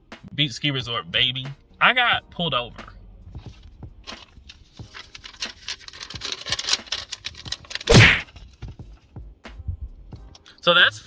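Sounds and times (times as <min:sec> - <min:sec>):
paper rustling and crackling: 0:03.5 - 0:08.6.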